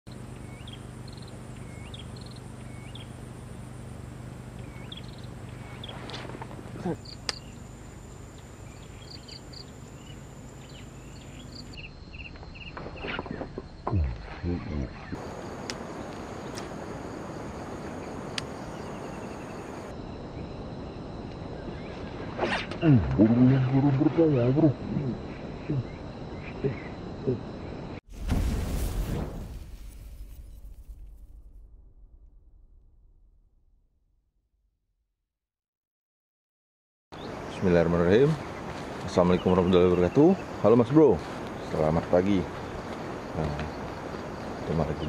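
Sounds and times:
steady low hum: 0.1s - 12.7s
outdoor background hiss: 0.1s - 30.8s, 37.2s - 45.0s
insects chirping: 0.1s - 32.6s, 37.1s - 45.0s
small bird calling: 4.6s - 15.2s.

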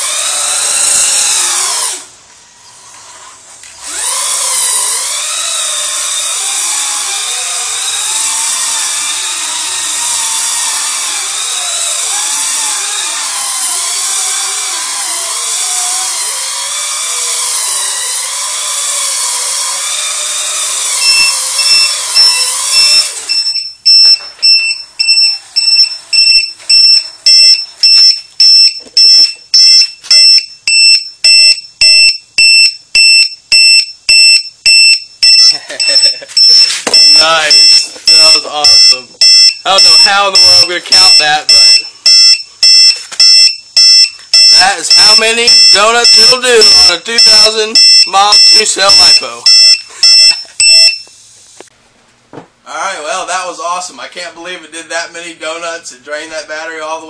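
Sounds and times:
electric motor whining: 0.0s - 2.1s, 3.0s - 23.4s
low-voltage alarm beeping: 21.0s - 51.1s.

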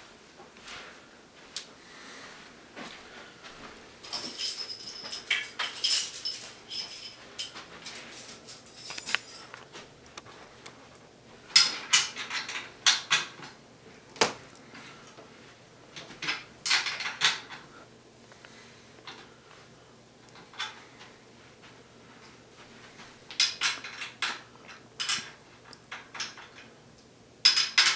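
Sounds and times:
bicycle parts clinking and rattling: 4.0s - 9.7s, 11.6s - 13.4s, 16.0s - 17.6s, 27.4s - 27.9s.

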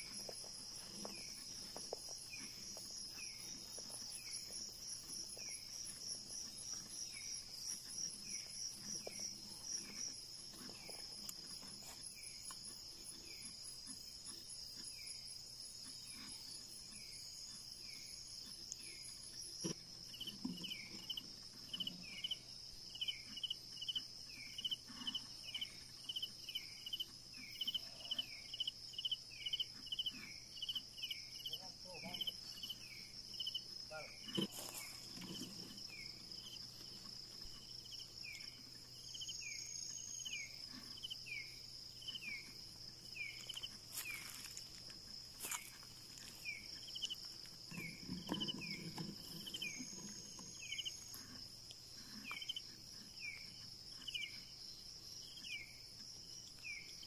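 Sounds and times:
crickets pulsing trill: 0.0s - 57.0s.

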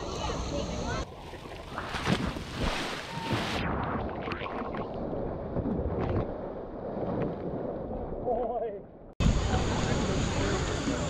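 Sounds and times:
elephant splashing water: 1.0s - 3.8s.

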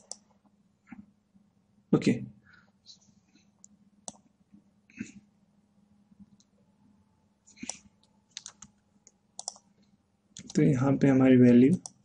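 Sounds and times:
keyboard and mouse clicks: 0.0s - 0.3s, 3.6s - 4.3s, 7.6s - 10.7s, 11.5s - 12.0s
faint steady hum: 0.0s - 12.0s.

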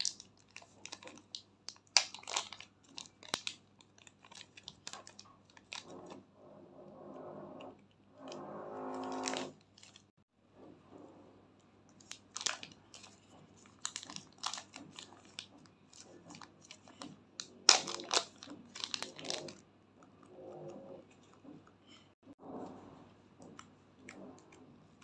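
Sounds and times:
plastic bag crinkling: 0.0s - 6.2s, 9.0s - 10.1s, 11.9s - 19.6s.

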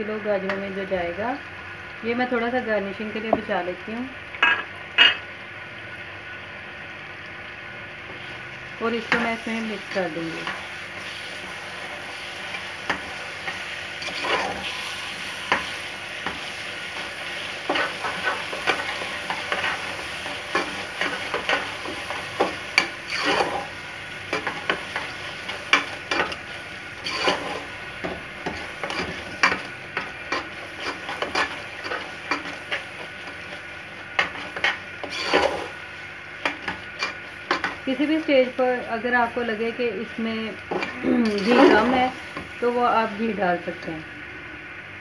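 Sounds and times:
carrots sizzling in ghee: 0.0s - 45.0s
metal spatula scraping a pot: 14.0s - 14.7s, 22.8s - 24.6s, 27.0s - 27.7s, 28.4s - 32.9s, 34.2s - 35.8s, 40.8s - 42.0s.

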